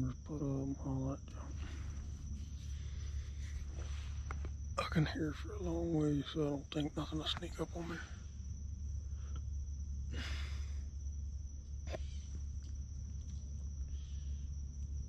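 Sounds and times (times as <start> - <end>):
insects trilling: 0.0 - 15.0
low steady rumble: 0.0 - 15.0
short rustle: 1.5 - 4.6.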